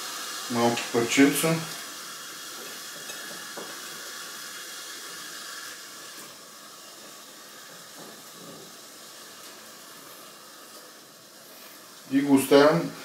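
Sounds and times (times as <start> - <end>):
rice cooker hissing: 0.0 - 13.0.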